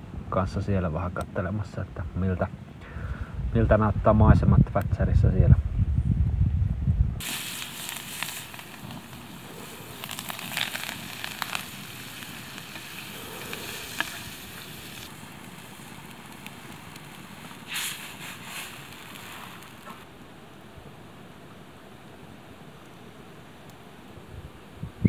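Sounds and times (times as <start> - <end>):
food sizzling in a frying pan: 7.2 - 20.0
wood fire crackling: 7.2 - 24.2.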